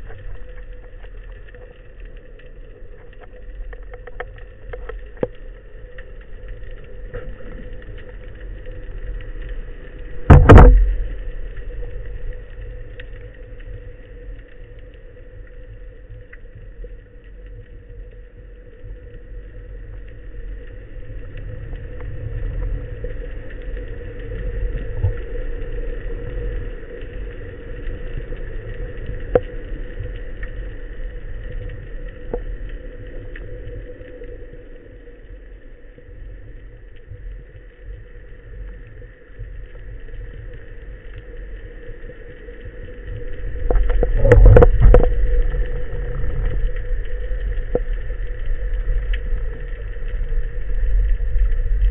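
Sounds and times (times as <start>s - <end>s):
rumbling and crackling burst: 0.0s - 14.2s, 38.5s - 51.9s
constant hum: 0.0s - 51.9s
underwater rumble: 0.0s - 51.9s.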